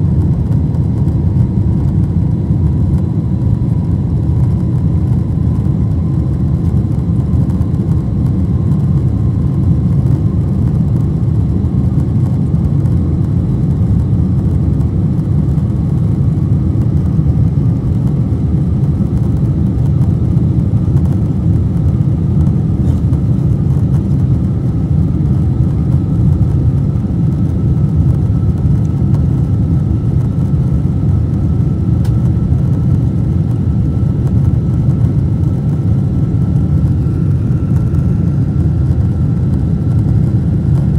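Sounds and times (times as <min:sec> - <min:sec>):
airplane cabin engine rumble: 0:00.0 - 0:40.9.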